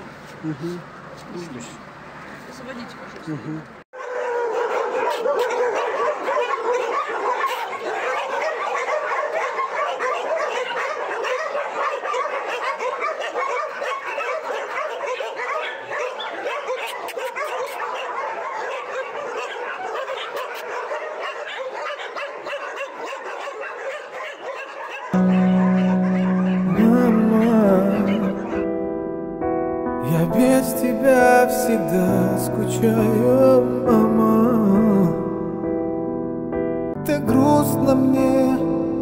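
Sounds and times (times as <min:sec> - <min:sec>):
many dogs barking and yelping: 0:04.0 - 0:28.7.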